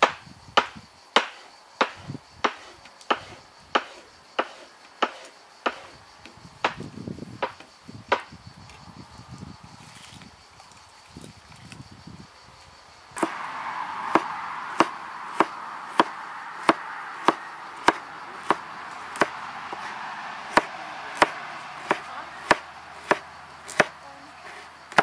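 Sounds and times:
knife chopping on wooden board: 0.6s - 6.0s, 14.1s - 19.9s, 20.5s - 25.0s.

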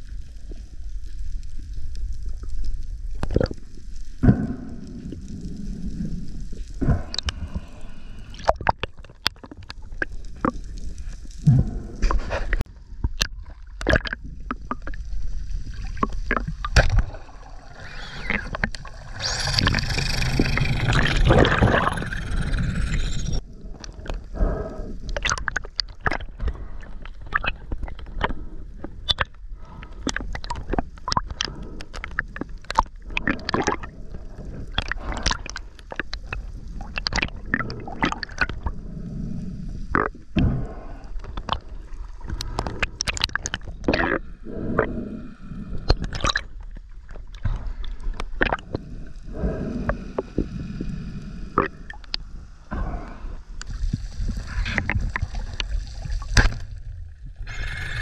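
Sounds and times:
water gurgling and sloshing: 0.0s - 58.0s
rushing gurgle of water: 15.7s - 23.2s.

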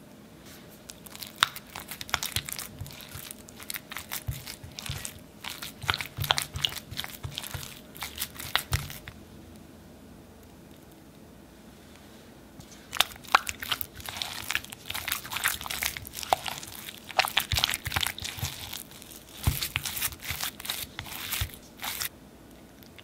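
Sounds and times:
sticky mixing of dough: 0.5s - 9.2s, 12.6s - 22.1s.

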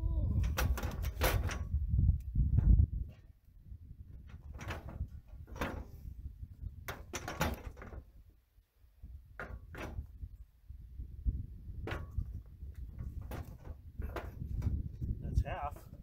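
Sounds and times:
metal knocks and rattles: 0.4s - 3.4s, 4.0s - 8.2s, 9.2s - 10.3s, 11.7s - 16.0s.

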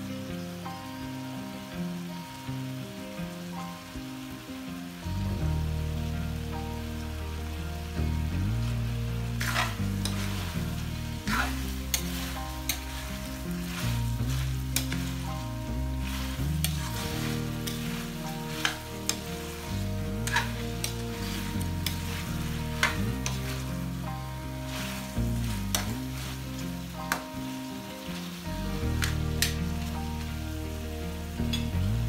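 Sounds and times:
food sizzling in a wok: 0.0s - 32.0s
metal spatula scraping a pan: 9.2s - 27.6s.

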